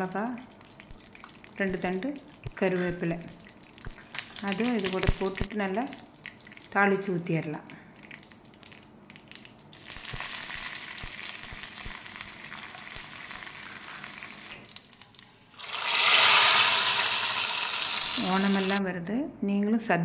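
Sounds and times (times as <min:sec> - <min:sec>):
leaves and chillies sizzling in oil: 0:04.4 - 0:05.9, 0:09.8 - 0:18.8
loud sizzle hitting liquid: 0:09.7 - 0:14.9, 0:15.5 - 0:18.8.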